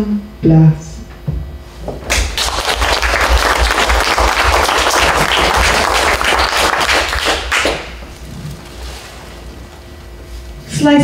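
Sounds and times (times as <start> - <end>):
audience applauding: 2.1 - 8.1.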